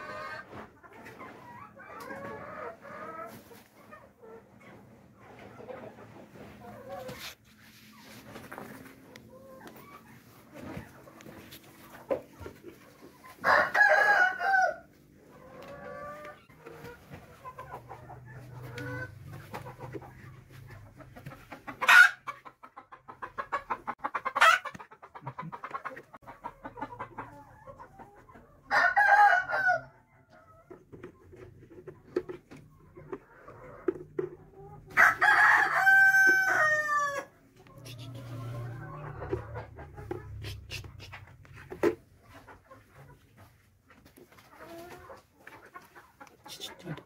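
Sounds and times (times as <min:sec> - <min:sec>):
hens clucking: 0:00.0 - 0:47.0
rooster crowing: 0:13.4 - 0:14.9, 0:28.7 - 0:29.9, 0:34.9 - 0:37.3.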